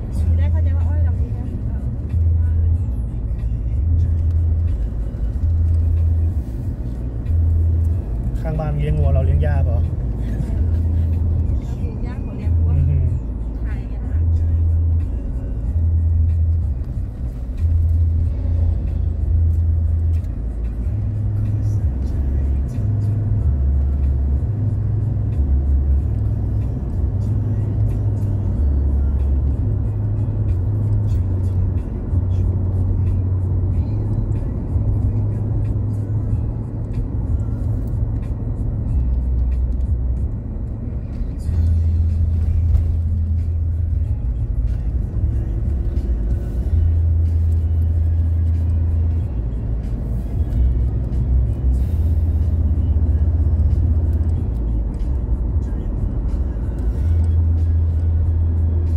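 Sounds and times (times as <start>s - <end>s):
car road and engine rumble: 0.0s - 58.9s.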